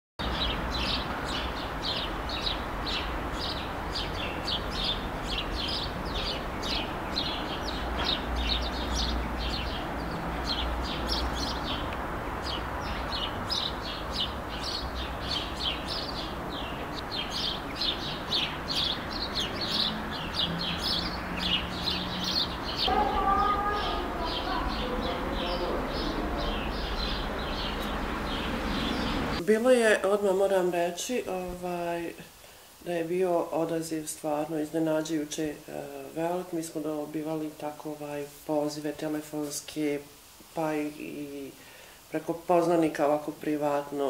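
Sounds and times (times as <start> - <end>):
small birds chirping: 0.2 - 44.0
steady background noise: 0.2 - 44.0.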